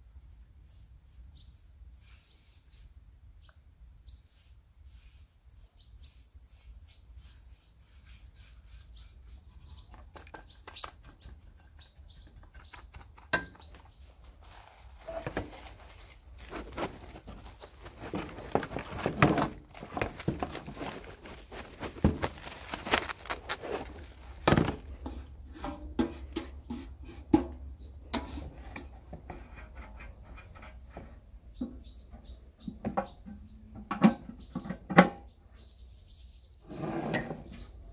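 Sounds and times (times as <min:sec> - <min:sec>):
cling film crackling: 0:15.0 - 0:24.8.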